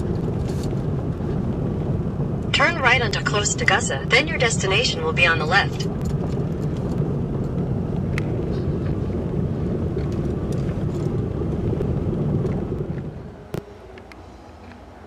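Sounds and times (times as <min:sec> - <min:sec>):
tyres rumbling on cobblestones: 0:00.0 - 0:13.6.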